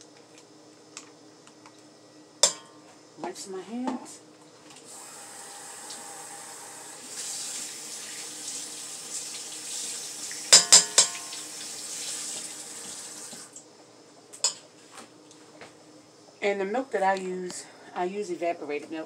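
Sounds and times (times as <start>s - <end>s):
sharp clanks in sink: 2.4s - 2.8s, 10.5s - 11.4s.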